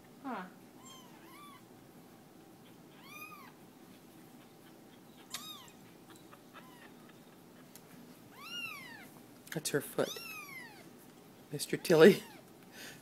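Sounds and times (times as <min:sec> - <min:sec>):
kittens mewing: 0:02.6 - 0:03.6, 0:04.4 - 0:07.7.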